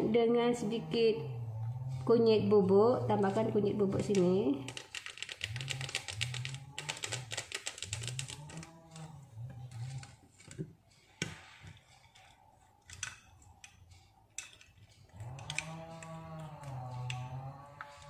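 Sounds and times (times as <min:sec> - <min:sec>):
powder shaken from sachet: 0:04.6 - 0:08.7.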